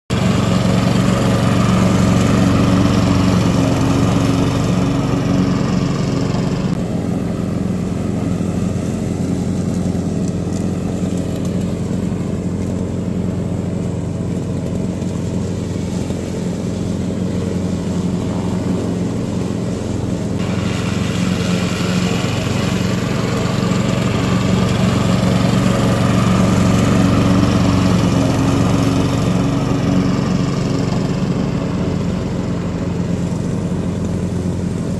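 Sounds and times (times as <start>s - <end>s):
lawn mower mowing grass: 0.1s - 34.9s.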